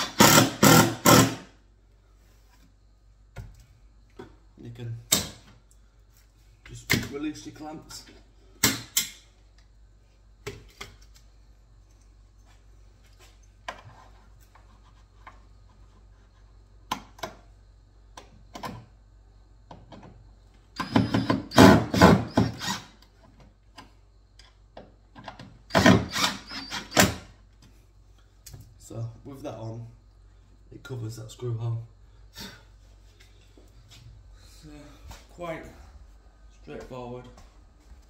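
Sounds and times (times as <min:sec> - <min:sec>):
impact driver hammering: 0:00.0 - 0:01.5, 0:20.8 - 0:22.6.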